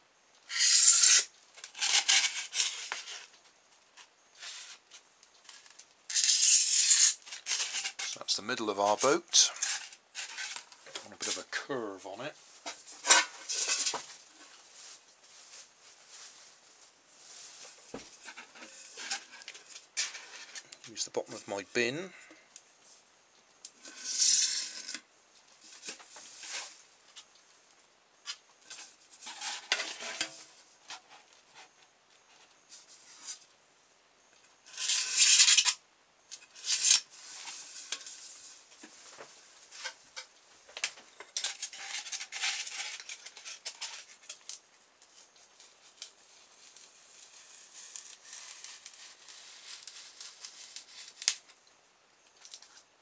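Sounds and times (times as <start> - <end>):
scraping and rubbing: 0.5 - 3.3, 4.4 - 11.6, 12.5 - 16.5, 17.2 - 21.6, 23.8 - 25.0, 25.7 - 26.8, 28.7 - 31.7, 34.7 - 35.8, 36.4 - 40.3, 41.2 - 44.5, 45.1 - 51.4.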